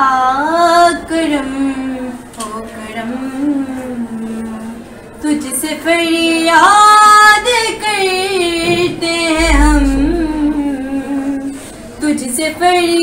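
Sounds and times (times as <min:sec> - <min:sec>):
low rumble: 0:09.4 - 0:11.5.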